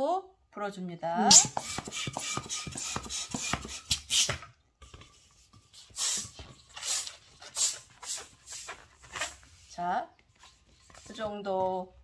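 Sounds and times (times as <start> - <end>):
balloon pump rushing air: 1.3 - 4.5, 5.7 - 9.4.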